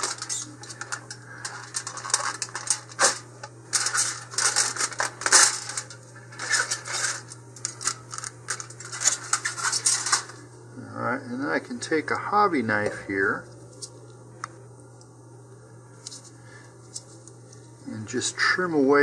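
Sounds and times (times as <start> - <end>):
foil crinkling: 0.0 - 10.4
steady low hum: 0.0 - 19.0.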